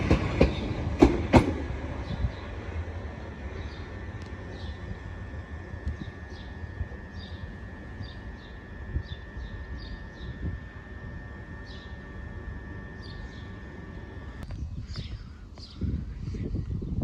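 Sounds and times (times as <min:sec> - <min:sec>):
electric train rumble and whine: 0:00.0 - 0:17.0
bird chirping: 0:03.5 - 0:10.7, 0:11.6 - 0:15.9.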